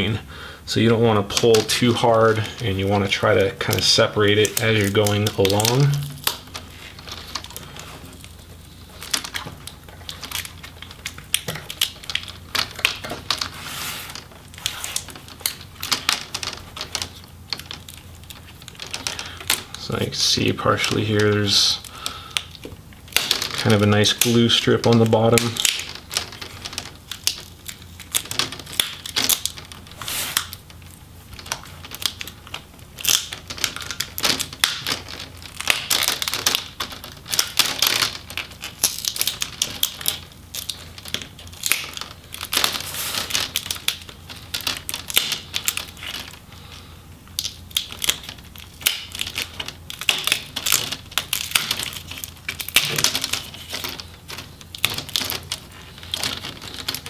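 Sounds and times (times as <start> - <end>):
plastic bezel clicking and crackling: 20.8 - 46.4, 47.3 - 57.0.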